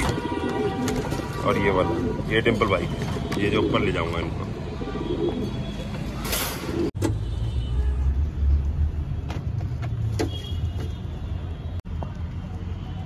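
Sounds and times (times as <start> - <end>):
pigeons cooing: 0.0 - 2.3, 3.4 - 5.6.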